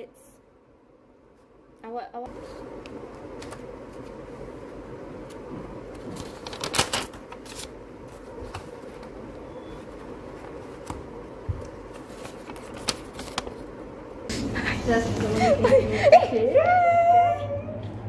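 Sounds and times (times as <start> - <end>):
steady background hum: 0.0 - 18.0
notepad pages rustling: 2.3 - 13.9.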